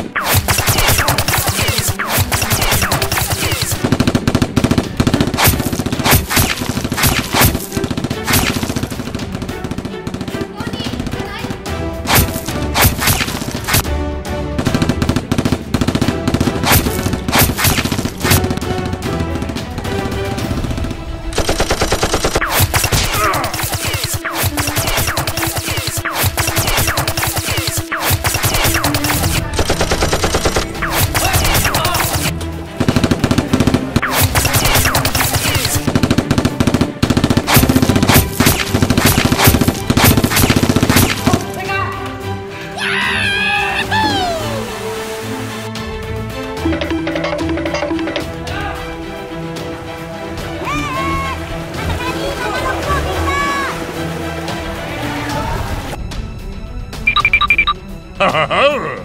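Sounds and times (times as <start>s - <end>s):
single gunshots: 0.0s - 10.5s, 12.0s - 13.9s, 14.6s - 41.6s
background music: 0.0s - 59.0s
automatic gunfire: 0.3s - 11.2s, 14.6s - 41.5s.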